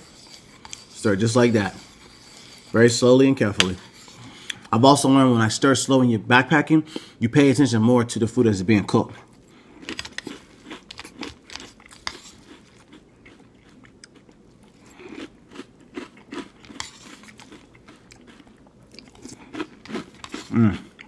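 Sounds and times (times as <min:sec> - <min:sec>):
spork scraping a bowl: 0:00.0 - 0:04.2
person chewing cereal: 0:00.0 - 0:04.8, 0:09.3 - 0:21.0.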